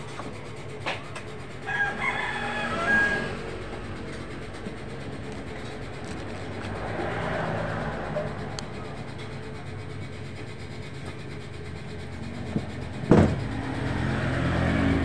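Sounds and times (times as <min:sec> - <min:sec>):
low hum of traffic: 0:00.0 - 0:15.0
rooster crowing: 0:01.6 - 0:04.0
van passing by: 0:02.2 - 0:10.6, 0:12.7 - 0:15.0.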